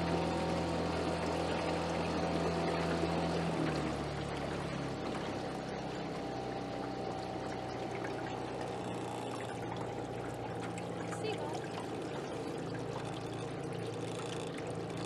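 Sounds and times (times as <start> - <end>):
outboard motor running: 0.0 - 15.0
water splashing along boat hull: 0.0 - 15.0.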